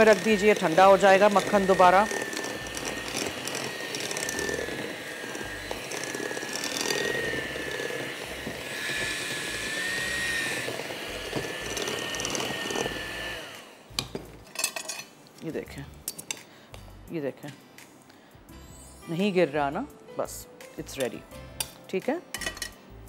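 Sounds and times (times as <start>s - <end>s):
electric hand mixer whining: 0.0s - 14.0s.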